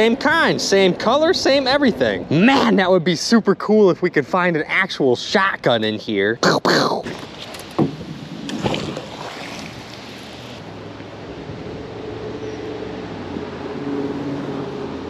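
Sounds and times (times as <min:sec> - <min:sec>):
wind on microphone: 0:07.1 - 0:10.6
engine hum: 0:07.1 - 0:15.0
knock: 0:07.8 - 0:08.1.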